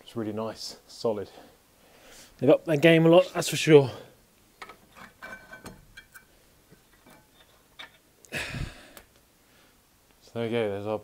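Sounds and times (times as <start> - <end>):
metallic clunk and scrape: 4.6 - 6.3.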